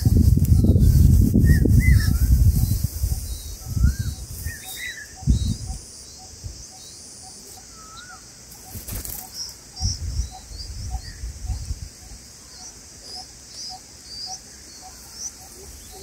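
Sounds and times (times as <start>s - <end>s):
chirping bird calls: 0.0s - 16.0s
bird wings flapping: 8.5s - 9.4s.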